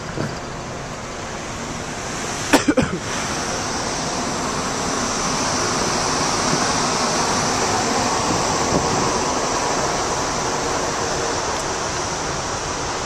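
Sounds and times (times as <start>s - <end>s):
wind rushing over microphone: 3.1s - 13.0s.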